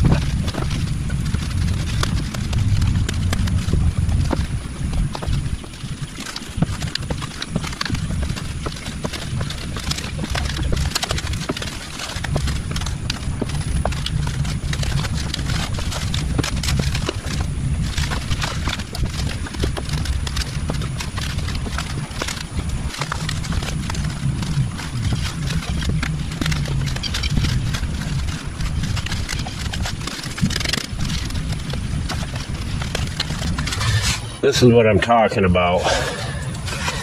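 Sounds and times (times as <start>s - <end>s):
low rumble: 0.0s - 37.0s
digging tool scraping clay: 24.9s - 34.8s, 35.8s - 37.0s.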